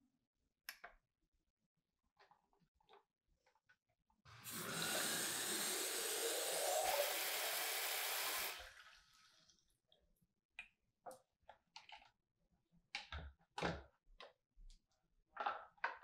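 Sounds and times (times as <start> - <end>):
tap water filling plastic tank: 4.3 - 9.3.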